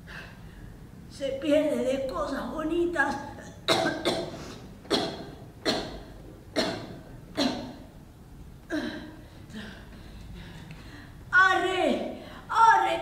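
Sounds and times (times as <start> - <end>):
person coughing: 3.4 - 7.9.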